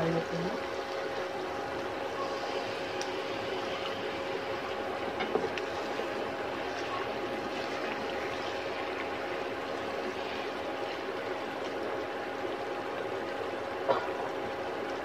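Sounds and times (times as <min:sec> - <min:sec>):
curry sizzling in a pan: 0:00.0 - 0:15.0
steady hum: 0:00.0 - 0:15.0
spatula stirring a pan: 0:02.0 - 0:11.8.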